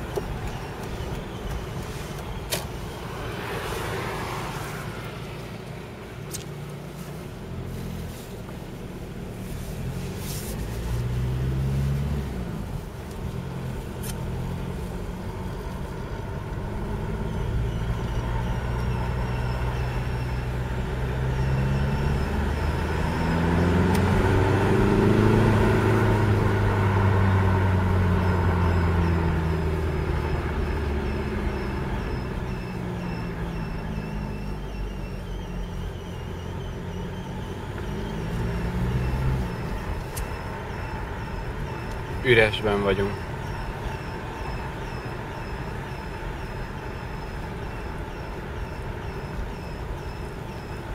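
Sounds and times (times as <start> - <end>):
exhaust whistling squeak: 0.0 - 5.0, 7.0 - 50.9
diesel engine running: 0.0 - 50.9.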